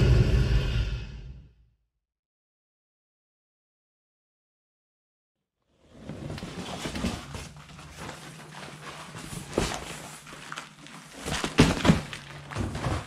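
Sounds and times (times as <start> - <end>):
cardboard rustling: 6.0 - 13.0.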